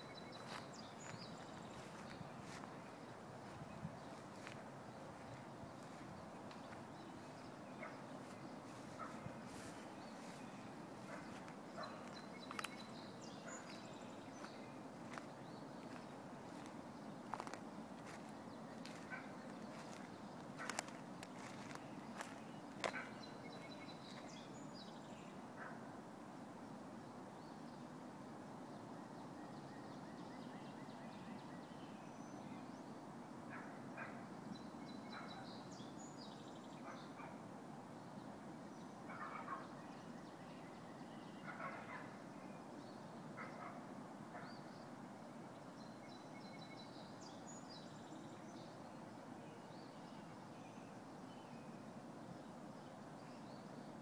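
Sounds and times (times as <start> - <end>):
birds calling: 0.0 - 24.7, 39.1 - 40.1.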